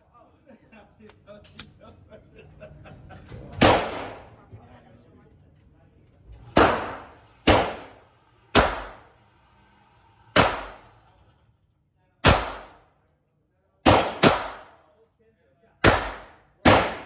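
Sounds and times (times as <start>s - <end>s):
pistol shots: 3.6s - 4.3s, 6.6s - 9.0s, 10.4s - 10.8s, 12.2s - 12.8s, 13.8s - 14.8s, 15.8s - 17.0s.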